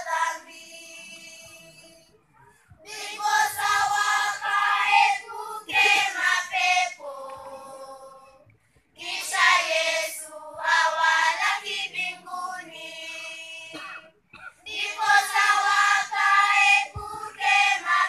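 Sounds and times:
children's choir singing: 0:00.0 - 0:02.0, 0:02.8 - 0:14.0, 0:14.7 - 0:18.0.

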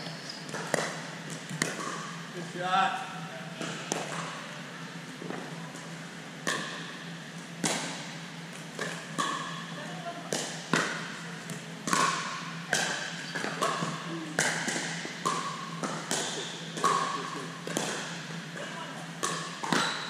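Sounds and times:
ball bouncing on gym floor: 0:00.4 - 0:02.1, 0:03.6 - 0:04.4, 0:07.6 - 0:20.0.

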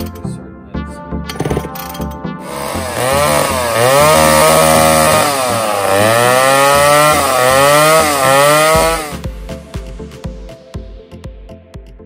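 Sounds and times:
chainsaw engine revving: 0:02.4 - 0:09.2.

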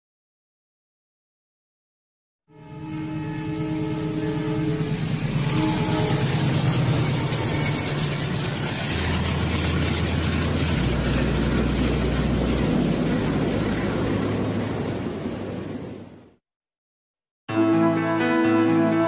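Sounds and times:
low drone: 0:02.5 - 0:16.4
train passing rumble: 0:02.5 - 0:16.4.

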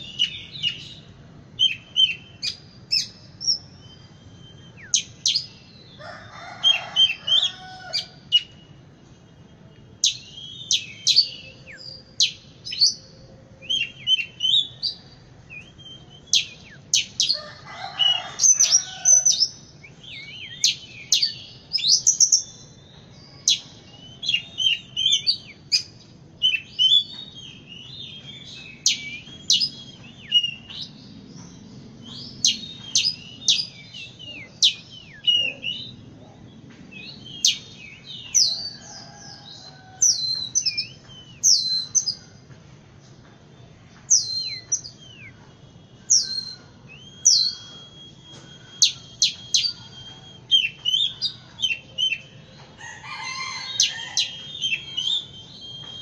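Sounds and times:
bird singing whistled phrases: 0:15.5 - 0:17.3, 0:44.2 - 0:52.3, 0:53.4 - 0:56.0.

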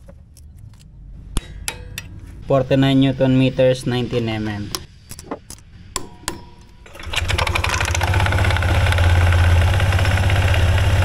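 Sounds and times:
motorcycle engine idling: 0:07.0 - 0:11.0.

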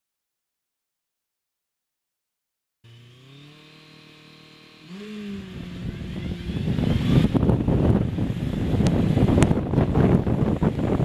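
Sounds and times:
motorcycle engine revving: 0:02.8 - 0:11.0
wind noise on microphone: 0:05.0 - 0:11.0.

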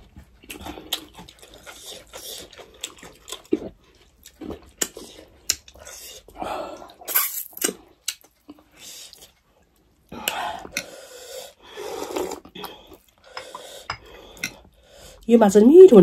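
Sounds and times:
wet chewing and lip smacks: 0:00.1 - 0:10.9
slurping: 0:10.2 - 0:15.0.

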